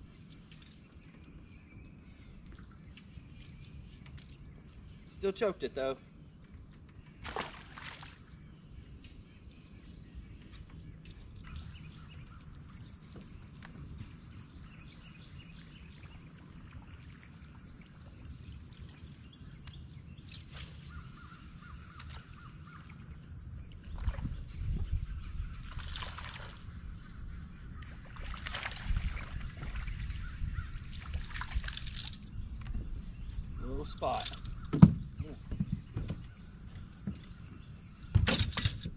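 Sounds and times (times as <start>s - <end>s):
water splash: 7.2s - 8.2s, 25.6s - 26.6s, 27.9s - 30.2s
faint bird calls: 11.5s - 38.2s.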